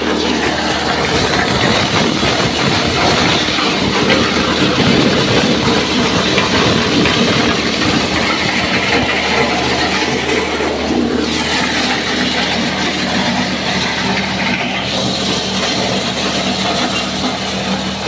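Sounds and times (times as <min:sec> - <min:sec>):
petrol engine running: 0:00.0 - 0:18.0
rattle of corn cobs shelled: 0:11.3 - 0:18.0.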